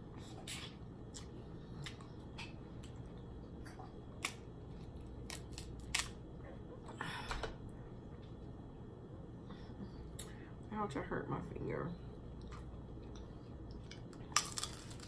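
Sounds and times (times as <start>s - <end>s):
shells snapping and cracking: 4.2s - 4.5s, 5.2s - 6.2s, 13.8s - 15.0s.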